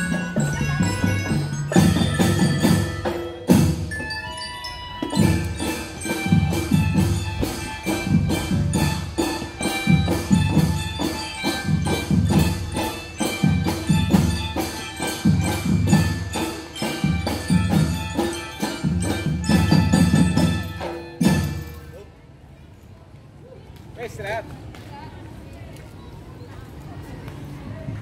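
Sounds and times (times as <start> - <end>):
marching drums beating: 0.0 - 4.1, 5.0 - 21.9
marching band melody: 0.0 - 22.0.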